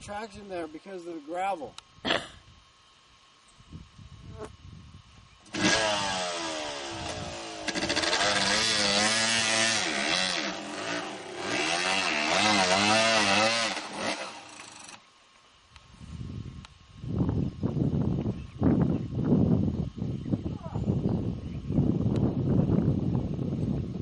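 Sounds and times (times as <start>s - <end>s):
dirt bike engine revving: 5.5s - 15.0s.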